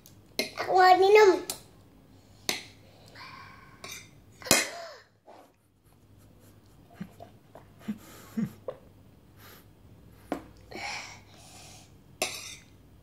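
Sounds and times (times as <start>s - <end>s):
child breathing in: 10.7s - 12.0s.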